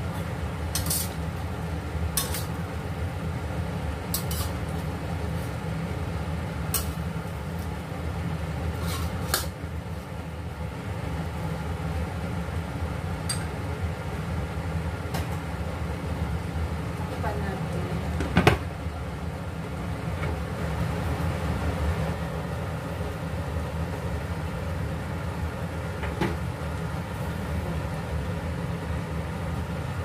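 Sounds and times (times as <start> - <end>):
metal spatula scraping pan: 0.8 - 1.2, 2.2 - 2.5, 4.1 - 4.6, 8.8 - 9.5.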